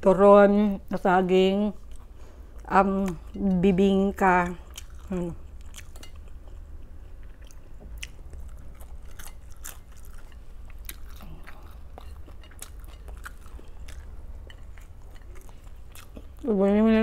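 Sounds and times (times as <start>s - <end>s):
steady low hum: 0.0s - 17.0s
person chewing crunchy food: 4.2s - 16.5s.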